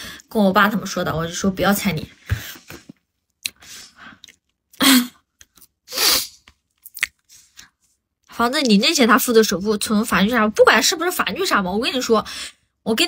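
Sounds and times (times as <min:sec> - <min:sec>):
soft mouth clicks: 0:03.4 - 0:03.6.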